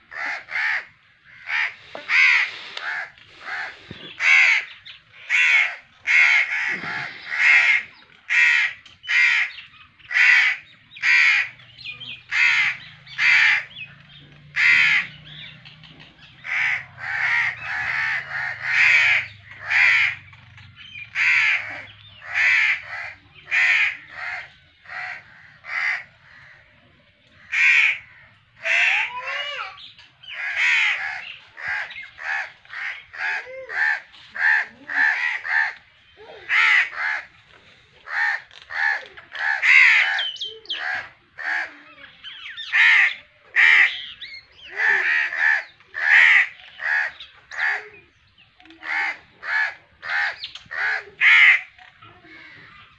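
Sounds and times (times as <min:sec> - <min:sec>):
crows cawing: 0:00.0 - 0:52.9.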